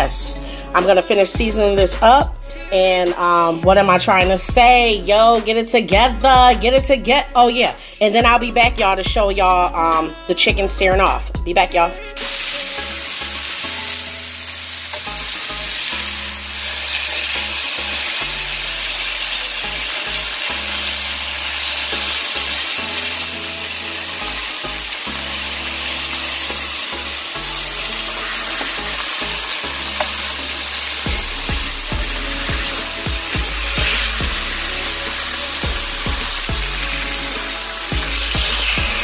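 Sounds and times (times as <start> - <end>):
bass-heavy music: 0.0 - 39.0
meat sizzling on a griddle: 12.2 - 39.0.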